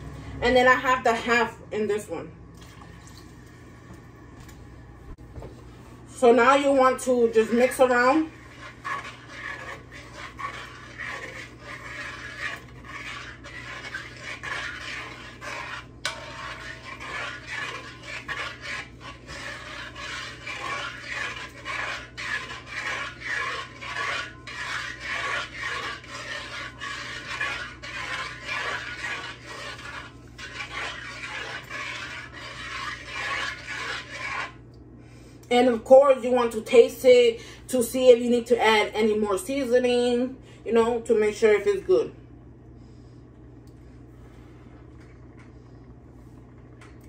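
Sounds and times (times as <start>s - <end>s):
metal spoon scraping pot: 6.7s - 34.6s.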